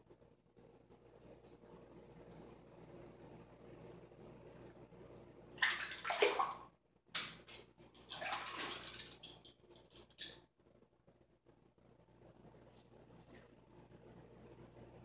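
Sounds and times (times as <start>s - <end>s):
water running into a sink: 7.3s - 10.1s.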